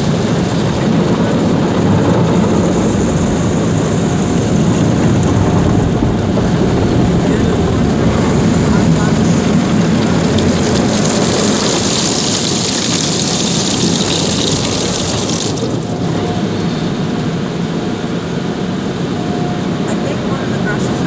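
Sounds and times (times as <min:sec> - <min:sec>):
car wash machinery rumbling: 0:00.0 - 0:21.0
water spraying on windshield: 0:07.3 - 0:16.1.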